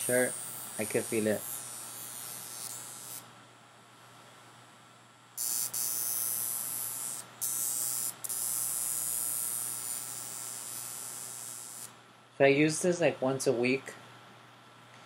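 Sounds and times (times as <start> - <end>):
electrode sparking hiss: 0.0 - 3.2, 5.4 - 11.9
electric wand faint hum: 0.0 - 15.0.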